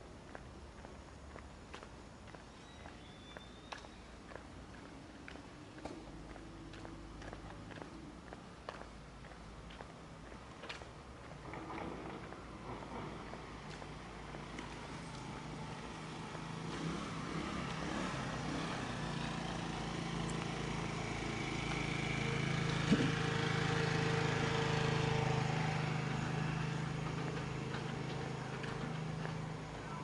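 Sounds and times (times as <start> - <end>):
vehicle engine passing: 11.2 - 30.0.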